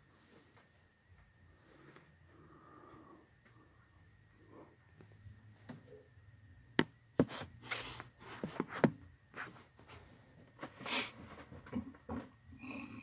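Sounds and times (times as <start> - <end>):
phone rubbing and rustling: 7.2 - 10.0.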